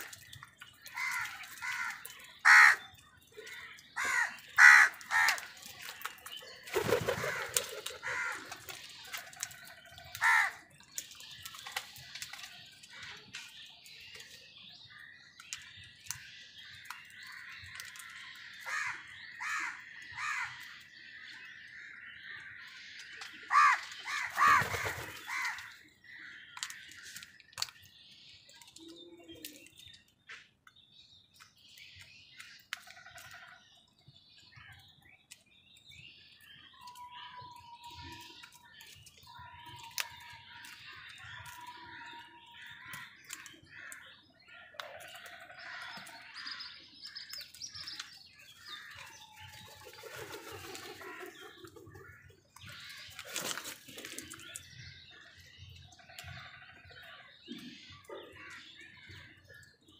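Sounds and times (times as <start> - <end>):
small birds chirping: 0.0 - 59.9
crows cawing: 0.9 - 3.0, 4.0 - 5.5, 7.1 - 8.7, 10.2 - 10.7, 18.6 - 20.7, 23.5 - 25.8.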